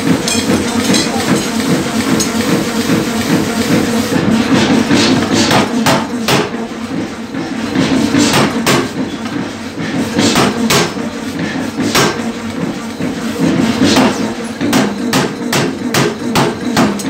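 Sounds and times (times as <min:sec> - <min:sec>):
power hammer striking steel: 0:00.0 - 0:02.6, 0:04.5 - 0:06.7, 0:07.8 - 0:09.0, 0:10.0 - 0:11.1, 0:11.8 - 0:12.3, 0:13.4 - 0:17.0.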